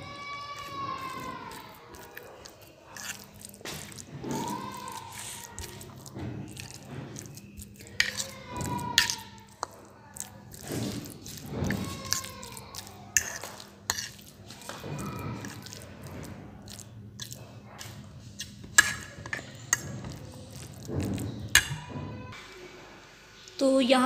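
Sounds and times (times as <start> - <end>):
fork mashing wet food: 0.0 - 22.0
fork tines clinking on plate: 6.5 - 10.3.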